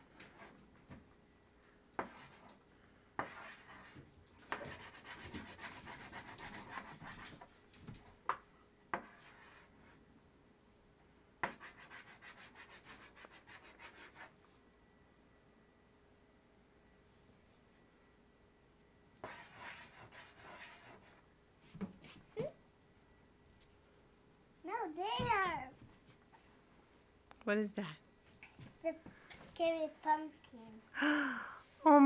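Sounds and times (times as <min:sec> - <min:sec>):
chalk tapping and scraping on chalkboard: 0:00.1 - 0:00.6, 0:02.0 - 0:02.6, 0:03.2 - 0:07.5, 0:08.3 - 0:10.0, 0:11.4 - 0:14.3, 0:19.2 - 0:21.2.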